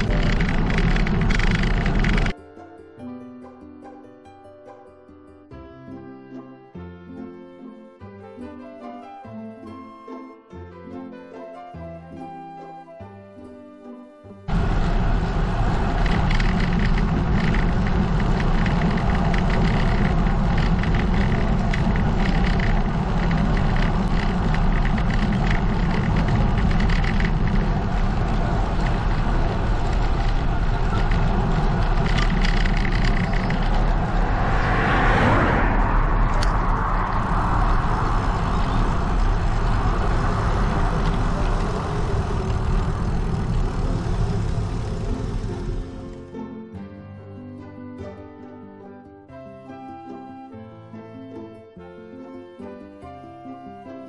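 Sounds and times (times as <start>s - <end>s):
vehicle passing: 0.0s - 2.3s, 14.5s - 46.3s
tyre noise on asphalt: 0.0s - 2.4s, 14.5s - 46.2s
wind buffeting microphone: 0.0s - 2.4s, 14.5s - 46.1s.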